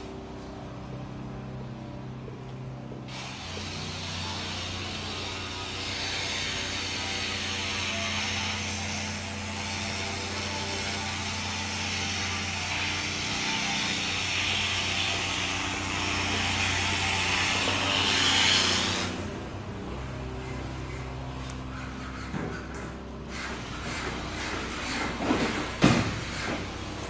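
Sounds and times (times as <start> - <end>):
mechanical hum: 0.0 - 27.0
loud hiss: 3.1 - 19.2.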